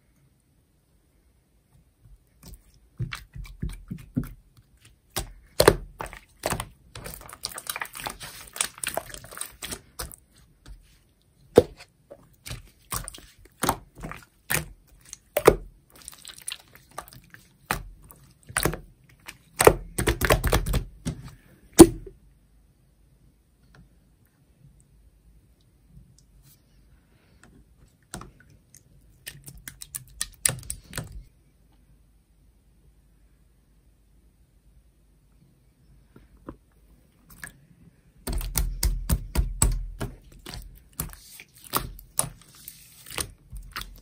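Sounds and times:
soft slime squishes: 0.0 - 22.1, 23.8 - 31.9, 35.8 - 44.0
slime clicking and crackling: 5.1 - 10.2.

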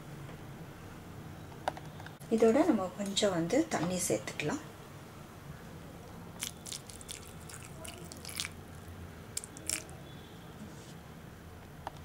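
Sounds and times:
small wet clicks: 6.4 - 9.9
water drips: 6.4 - 9.9.

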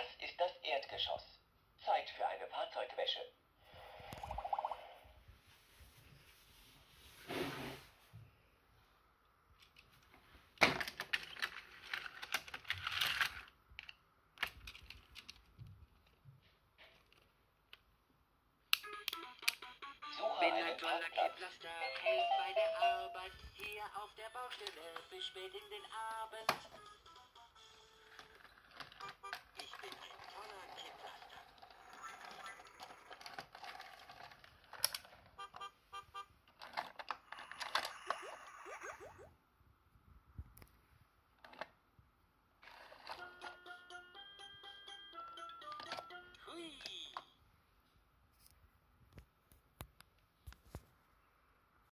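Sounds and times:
toy car clicking on plastic track: 10.8 - 15.4, 28.1 - 35.2
tinny electronic toy tune: 18.8 - 20.6, 26.6 - 28.4, 29.0 - 29.8, 35.4 - 36.3, 43.1 - 46.6.

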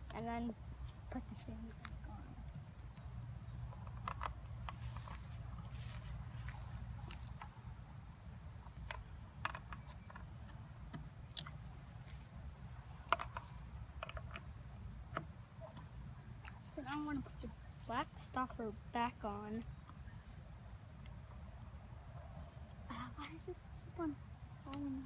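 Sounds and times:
plastic clicks and knocks: 8.8 - 11.5.

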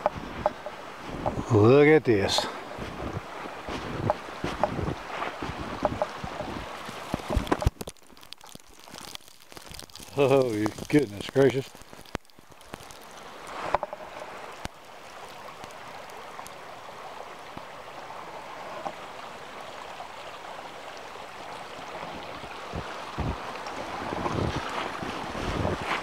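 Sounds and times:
wind noise on microphone: 2.7 - 7.8, 22.2 - 26.0.

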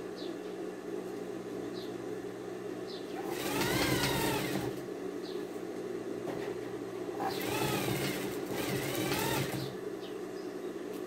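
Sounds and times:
sewing machine motor humming: 3.2 - 4.8, 7.2 - 9.8
sewing machine stitching whine: 3.2 - 4.8, 7.2 - 9.8.

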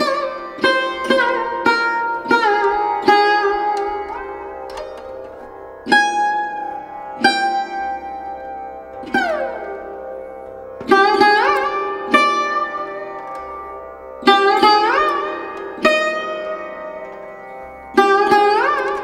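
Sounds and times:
plucked string notes: 0.0 - 19.0.

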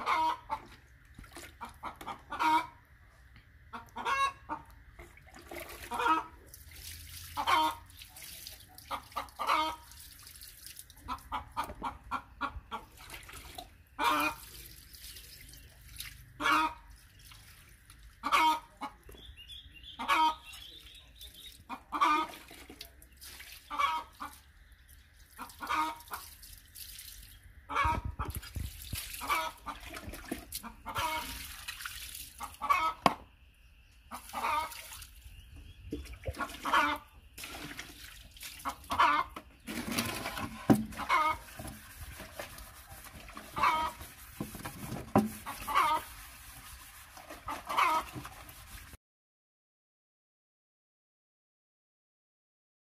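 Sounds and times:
chickens clucking: 0.0 - 6.5, 7.3 - 9.9, 11.0 - 14.7, 15.6 - 16.9, 18.2 - 24.6, 25.4 - 26.3, 27.6 - 31.4, 32.4 - 37.6, 38.6 - 48.7.

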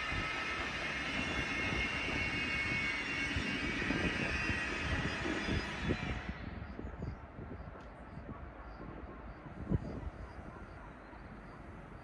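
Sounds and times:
train rumbling past: 0.0 - 7.6.

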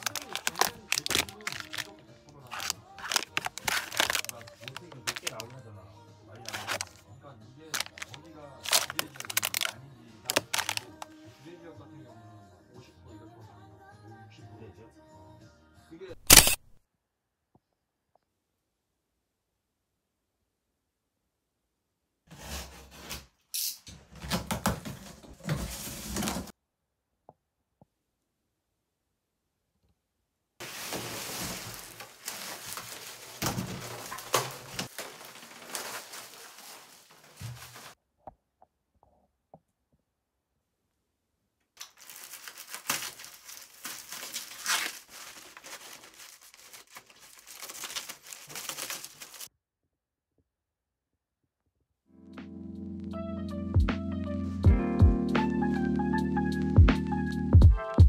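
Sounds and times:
cardboard box tearing open: 0.0 - 1.9, 2.5 - 5.5, 6.5 - 6.9, 7.8 - 9.7, 10.3 - 11.0, 42.0 - 49.5.

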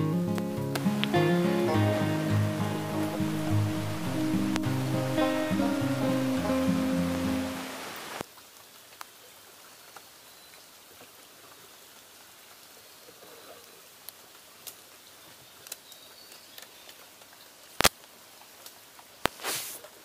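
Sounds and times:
raindrop ticks: 0.0 - 1.3, 2.9 - 7.2, 8.2 - 11.7, 13.9 - 20.0
light rain on river: 0.0 - 20.0.

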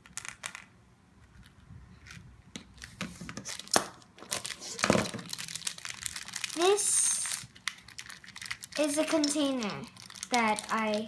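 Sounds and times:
plastic bag rustling: 2.8 - 11.0
small plastic pieces clicking: 3.5 - 11.0.

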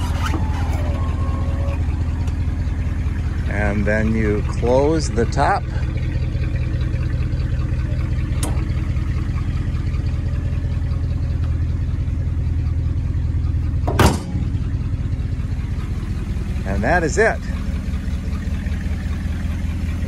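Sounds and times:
car engine idling: 0.0 - 20.0
deck lid thump shut: 8.4 - 8.7, 13.8 - 14.6.

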